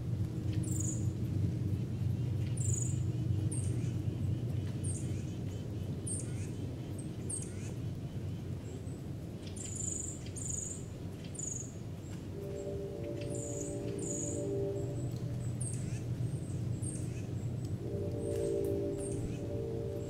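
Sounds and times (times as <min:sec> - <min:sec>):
steady low rumble: 0:12.2 - 0:20.0.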